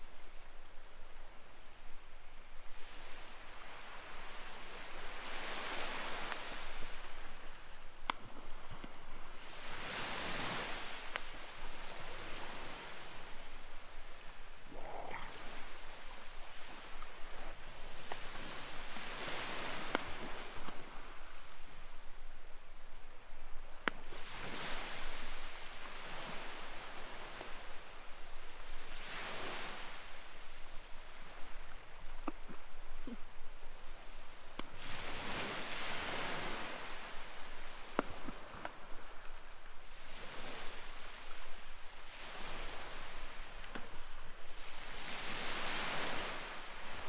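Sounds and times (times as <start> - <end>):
waves washing onto pebbles: 2.8 - 21.7, 24.0 - 27.8, 34.7 - 39.2, 44.6 - 47.0.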